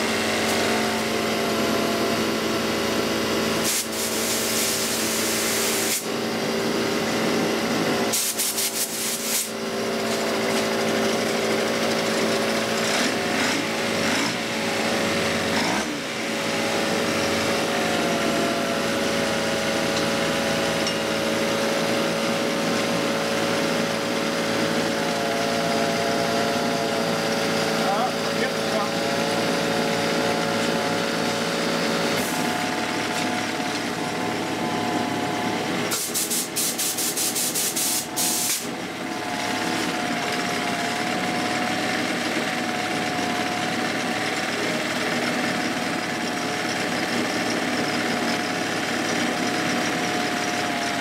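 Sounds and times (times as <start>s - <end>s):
outboard motor running: 0.0s - 8.1s, 9.0s - 36.0s, 38.0s - 51.0s
short hiss: 8.2s - 9.5s.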